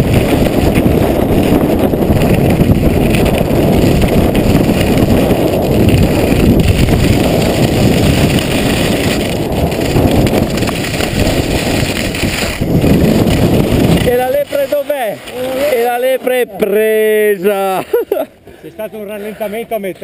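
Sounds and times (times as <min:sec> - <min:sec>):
wind buffeting microphone: 0:00.0 - 0:16.2
skis hissing on snow: 0:03.8 - 0:15.9, 0:17.4 - 0:18.3.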